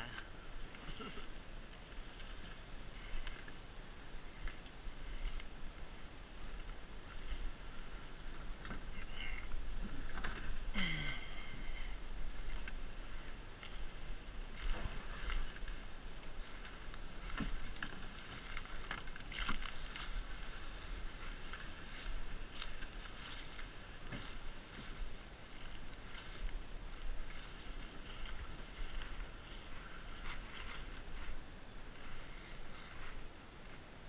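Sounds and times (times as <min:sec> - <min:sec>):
kayak dragged over dry leaves: 0:00.3 - 0:34.0.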